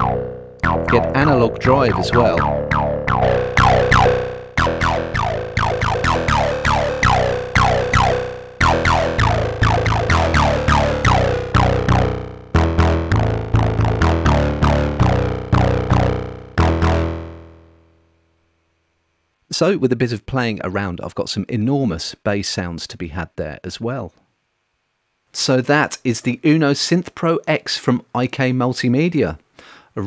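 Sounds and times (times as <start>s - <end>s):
synth bass line with filter sweeps: 0.0s - 17.9s.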